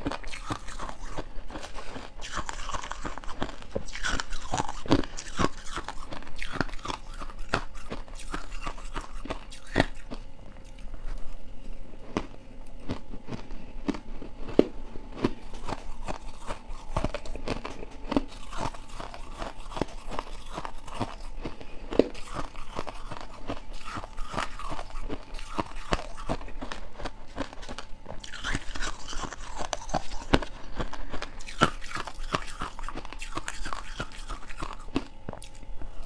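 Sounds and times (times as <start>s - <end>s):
crunching ice: 0.0s - 10.1s.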